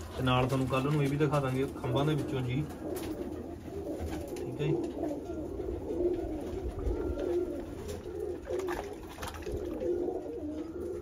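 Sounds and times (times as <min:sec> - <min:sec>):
pigeons cooing: 0:00.0 - 0:11.0
water splashing in bucket: 0:08.4 - 0:09.9.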